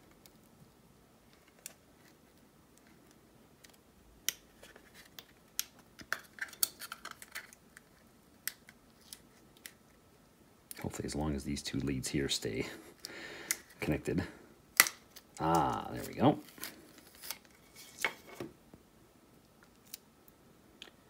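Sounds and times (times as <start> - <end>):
plastic clicks and crackles: 0.0 - 9.8.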